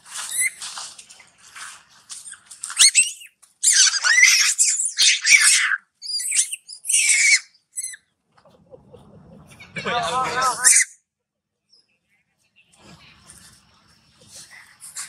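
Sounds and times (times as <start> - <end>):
young monkey screaming: 2.7 - 8.0, 10.4 - 11.0.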